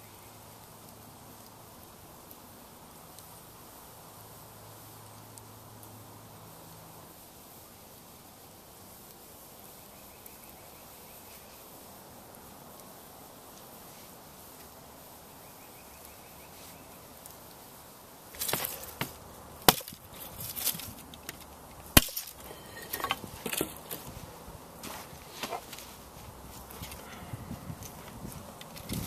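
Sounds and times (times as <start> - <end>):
light crackling: 0.1 - 29.0
sharp wooden cracks and knocks: 18.3 - 24.1.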